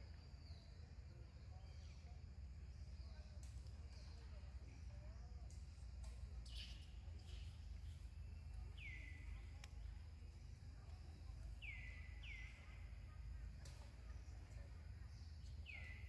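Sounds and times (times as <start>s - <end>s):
faint clicks: 9.5s - 9.9s.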